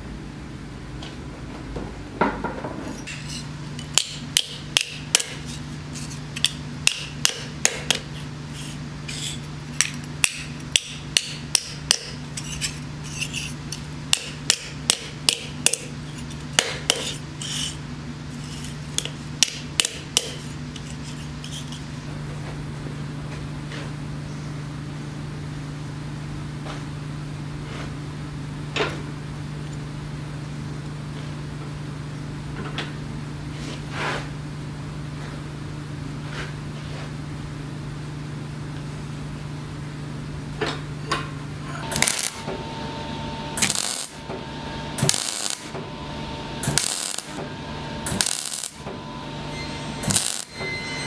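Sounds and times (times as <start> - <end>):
steady low hum: 0.0 - 51.0
hammer tapping sheet steel on anvil: 3.0 - 5.5, 6.4 - 8.1, 9.8 - 16.0, 16.6 - 17.7, 19.0 - 20.9, 48.1 - 49.0.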